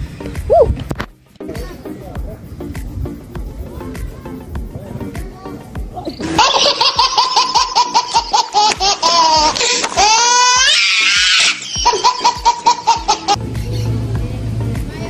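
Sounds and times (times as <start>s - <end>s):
baby laughing and shrieking: 6.0s - 13.4s.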